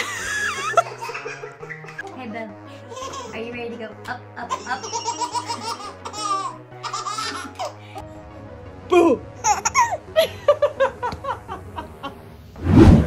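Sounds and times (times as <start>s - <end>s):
babies laughing: 0.0s - 2.1s, 2.9s - 3.4s, 4.4s - 8.0s, 9.4s - 10.3s
background music: 0.0s - 13.0s
infant laughing squeals: 4.5s - 7.8s.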